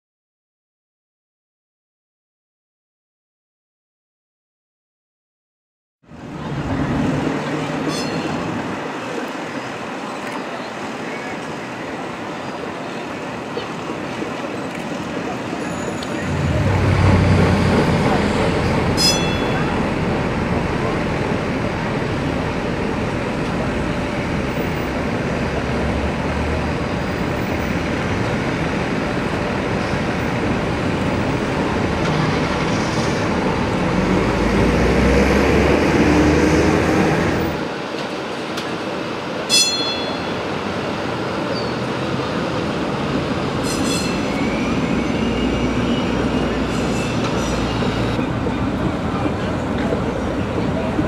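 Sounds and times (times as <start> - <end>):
street traffic noise: 6.0 - 51.0
streetcar rolling past: 6.1 - 51.0
sharp ringing strike: 19.0 - 19.8, 39.5 - 40.5.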